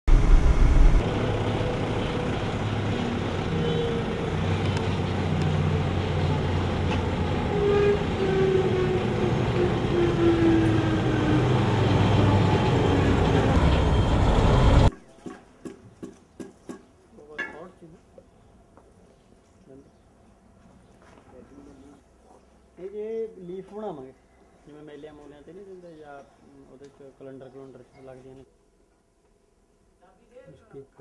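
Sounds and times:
diesel engine droning: 0.1s - 14.9s.

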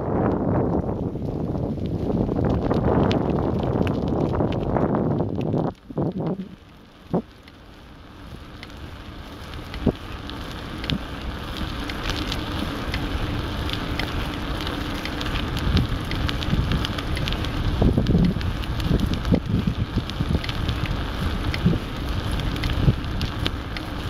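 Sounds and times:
wind buffeting microphone: 0.0s - 7.4s, 8.2s - 24.0s
fine crackles: 0.0s - 24.0s.

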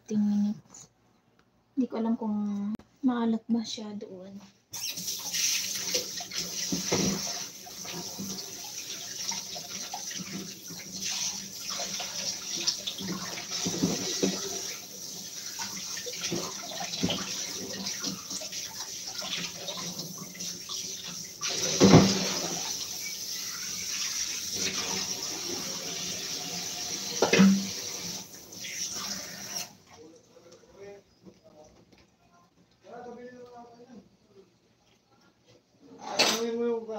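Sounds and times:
tap running into a steel sink: 27.2s - 27.8s.

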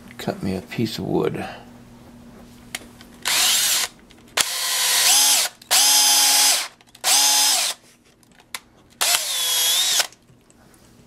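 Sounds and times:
electric drill boring into wood: 3.2s - 7.8s, 9.0s - 10.2s.

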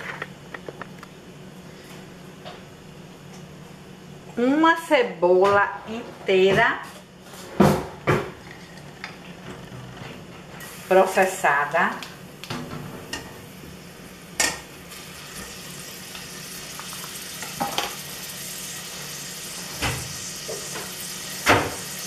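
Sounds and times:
onion sizzling in oil: 10.6s - 12.5s, 13.4s - 22.0s.

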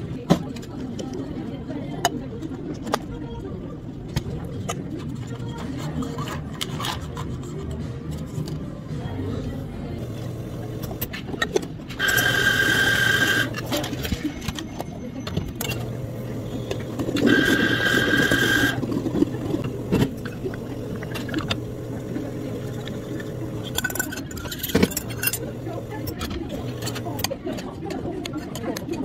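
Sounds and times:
low hum of cafe equipment: 0.0s - 29.0s
cups and utensils clinking: 10.8s - 27.4s
small electric machine whirring: 12.0s - 14.0s, 15.6s - 27.3s.

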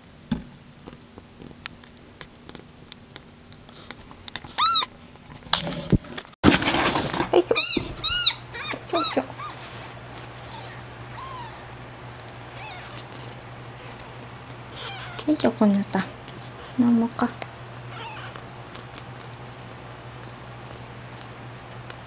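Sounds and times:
rustling handling noise: 3.6s - 22.0s
kitten mewing: 4.5s - 4.9s, 7.4s - 9.7s, 10.4s - 11.8s, 12.5s - 14.1s, 14.7s - 15.4s, 16.4s - 17.0s, 17.9s - 18.5s.

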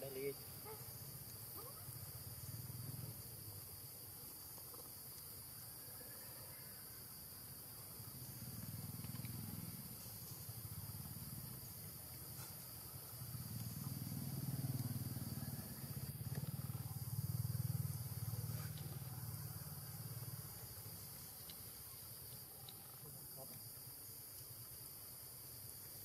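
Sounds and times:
forest insects hissing: 0.0s - 26.0s.

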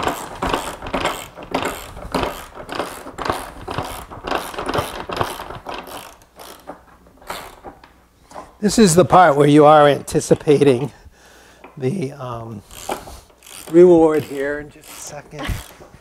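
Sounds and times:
ratchet wrench clicking: 0.0s - 7.7s, 12.7s - 15.8s.

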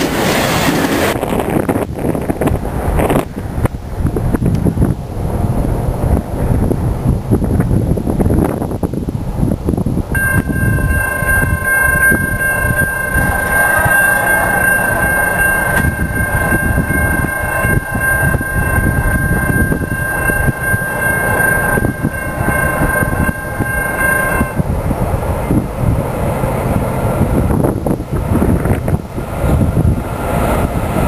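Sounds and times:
wind noise on microphone: 0.0s - 31.0s
distant locomotive air horn: 10.2s - 24.6s.

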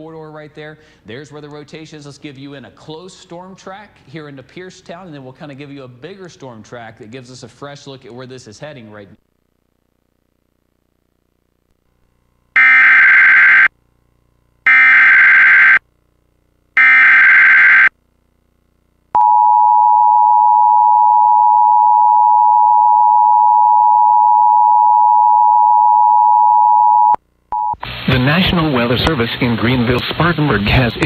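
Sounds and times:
digital header bursts: 14.7s - 15.8s, 16.8s - 17.9s.

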